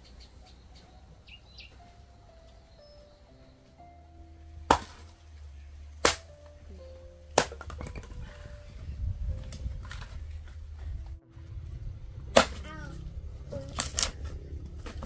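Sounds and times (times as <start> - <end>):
quiet background music: 0.0 - 15.0
hoe blade chopping wood: 4.7 - 5.1, 6.0 - 6.4, 7.4 - 8.2, 12.3 - 12.8.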